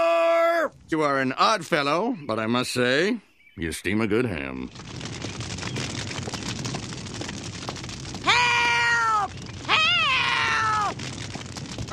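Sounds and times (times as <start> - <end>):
fire crackling: 3.8 - 11.9.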